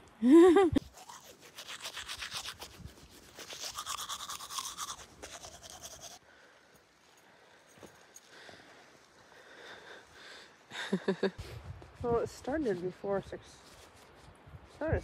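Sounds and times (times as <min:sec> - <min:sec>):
toothbrush scrubbing teeth: 0:00.8 - 0:06.2.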